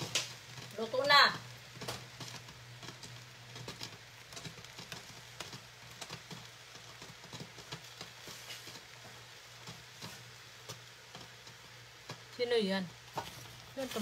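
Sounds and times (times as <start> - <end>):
noodles crackling in a hot pan: 0.0 - 14.0.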